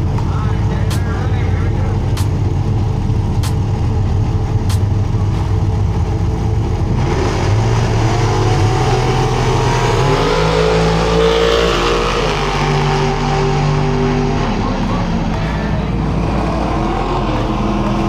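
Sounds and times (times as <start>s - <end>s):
drag racing cars idling: 0.0s - 18.0s
race car engines revving hard: 0.0s - 18.0s.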